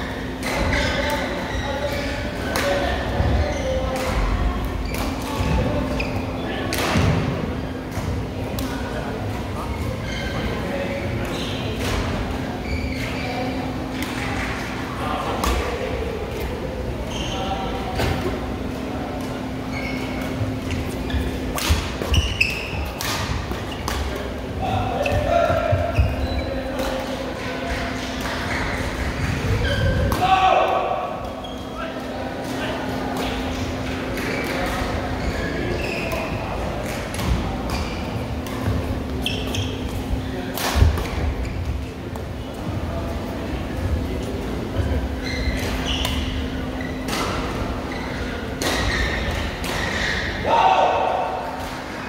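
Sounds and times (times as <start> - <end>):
shoes squeaking on court floor: 0.2 - 6.6, 9.5 - 14.8, 17.1 - 30.2, 31.2 - 32.1, 33.2 - 40.4, 43.9 - 50.4
shoe squeaks on court floor: 10.0 - 10.6, 19.6 - 23.0, 25.0 - 26.6, 35.1 - 36.5, 39.2 - 39.9, 45.1 - 47.1.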